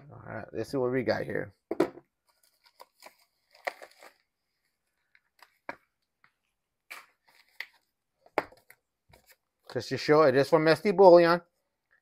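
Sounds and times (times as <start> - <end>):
plastic mailer rustling: 2.2 - 5.0.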